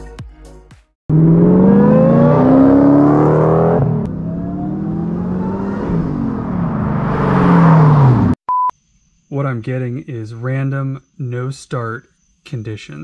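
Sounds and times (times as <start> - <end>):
car engine accelerating hard: 1.1 - 8.4.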